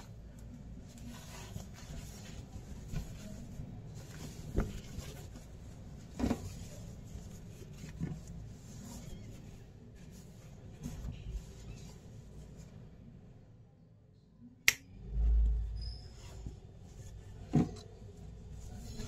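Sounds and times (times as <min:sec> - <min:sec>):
fabric bag rustling: 0:00.0 - 0:12.6
low steady hum: 0:00.0 - 0:19.0.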